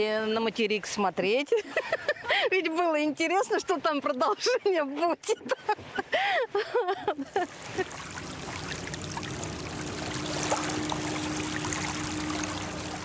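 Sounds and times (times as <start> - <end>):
faint steady hum: 6.0 - 13.0
water splashing from oars: 7.4 - 13.0.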